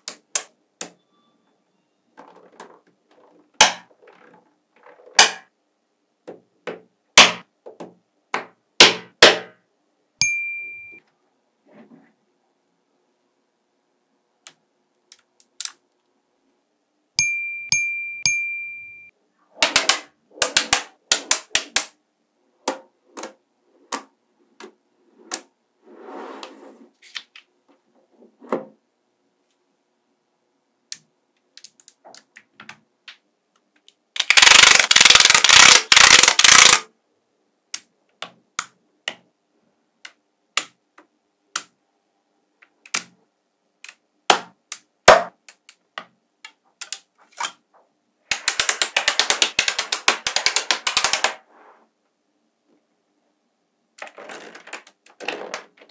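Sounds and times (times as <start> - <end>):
rapid rattling clicks: 34.2 - 36.8
magnetic balls clicking together: 34.2 - 36.9, 48.3 - 51.4.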